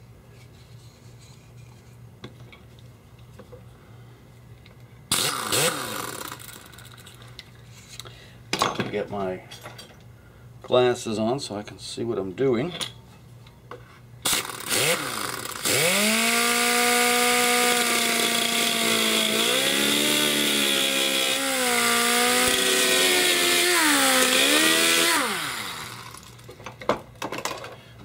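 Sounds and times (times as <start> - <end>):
rotary tool motor whining: 5.1 - 7.0, 14.3 - 26.5.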